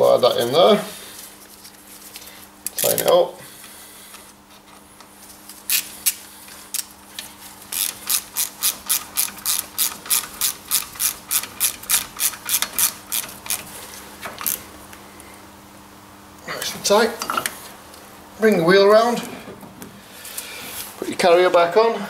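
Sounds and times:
ratchet wrench clicking: 7.7 - 13.7.

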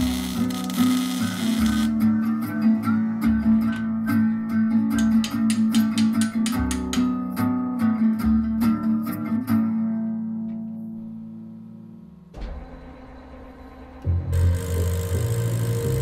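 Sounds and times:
picked guitar music: 0.0 - 11.8.

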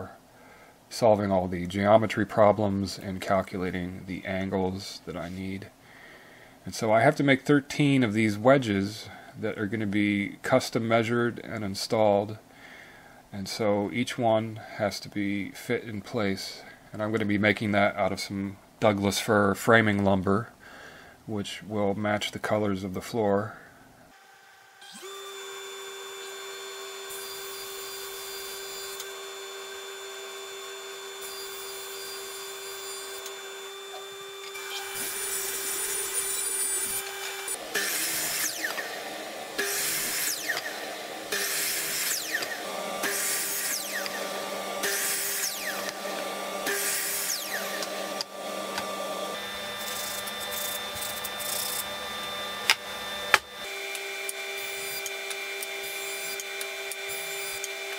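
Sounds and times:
machine hum: 24.1 - 57.9
miter saw cutting wood: 24.2 - 57.9.

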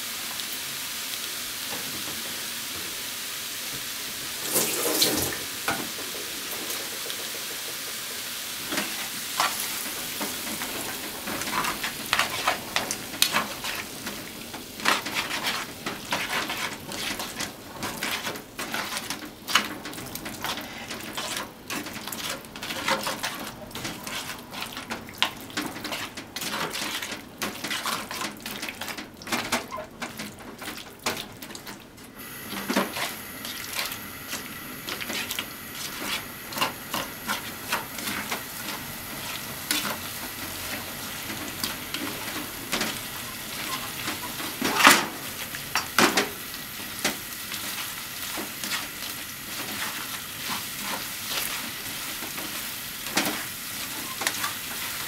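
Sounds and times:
food sizzling in a frying pan: 0.0 - 55.0
tongs clicking and scraping pan: 8.7 - 31.8.

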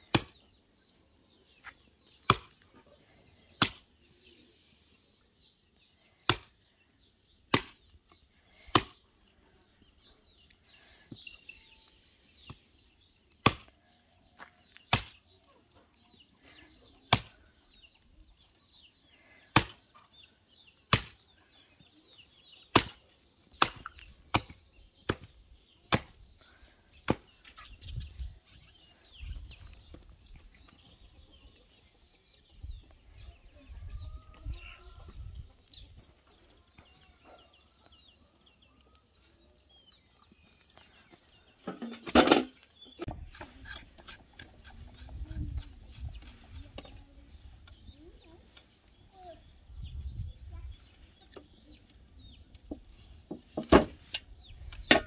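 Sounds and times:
axe chopping on wooden block: 0.1 - 0.4, 2.2 - 2.6, 3.6 - 3.8, 6.3 - 6.5, 7.5 - 7.8, 13.4 - 13.7, 14.9 - 15.2, 19.6 - 19.8, 20.9 - 21.2, 22.7 - 23.0, 23.6 - 25.3, 25.9 - 26.2.

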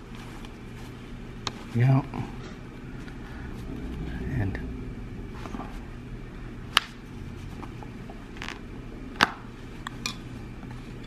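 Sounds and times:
soft rustle: 0.0 - 2.0.

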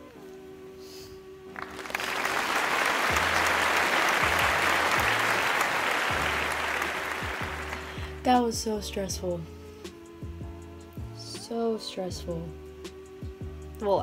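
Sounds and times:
soft background music: 0.0 - 14.0
applause: 1.6 - 8.1.

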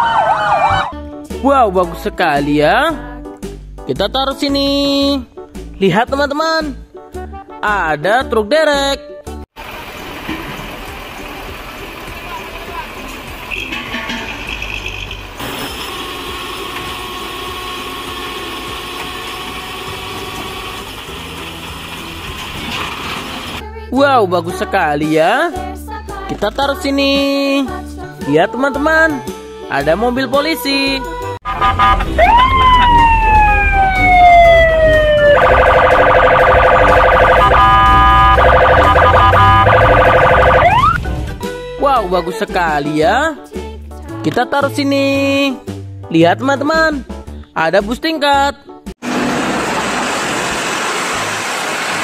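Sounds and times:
police siren wailing: 0.0 - 1.0, 31.5 - 41.0
truck engine running: 9.6 - 23.6, 31.4 - 41.4, 49.0 - 52.0.

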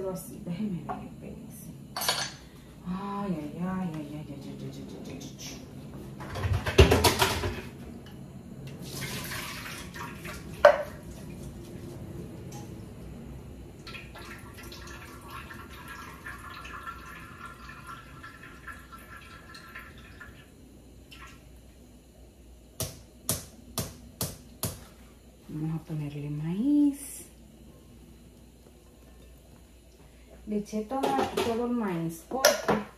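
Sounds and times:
water splashing into sink: 8.8 - 11.4, 13.8 - 20.5.

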